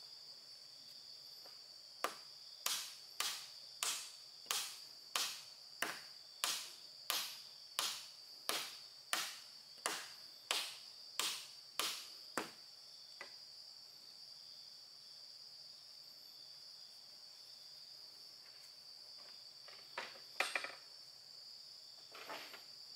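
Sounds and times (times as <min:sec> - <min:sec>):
high insect drone: 0:00.0 - 0:22.9
tool striking wood: 0:02.0 - 0:12.6.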